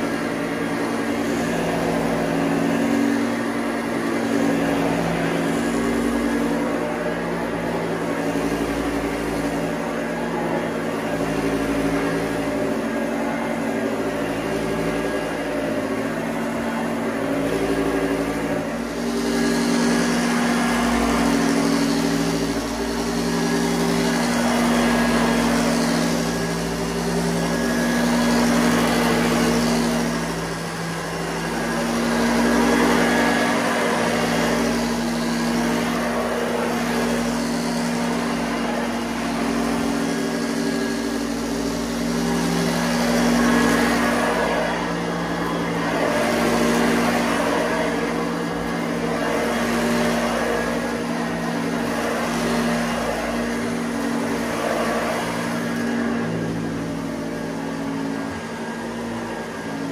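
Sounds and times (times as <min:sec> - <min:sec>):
vacuum cleaner running on carpet: 0:00.0 - 0:59.9.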